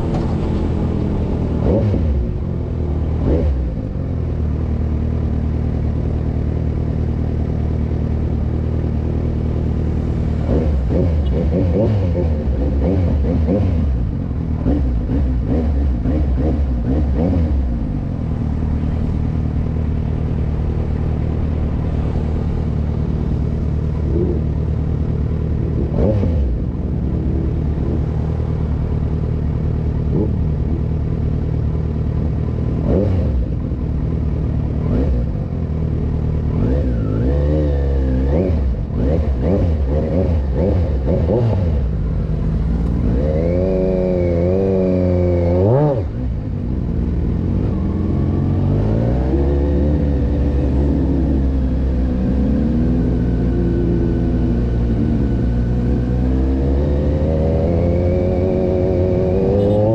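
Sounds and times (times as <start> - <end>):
motorcycle engine running: 38.3 - 59.9.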